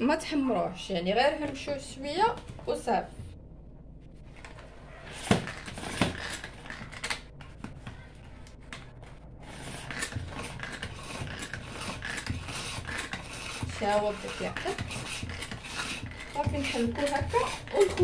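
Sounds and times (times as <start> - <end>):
hand-cranked mixer clicking and rattling: 9.6 - 18.0.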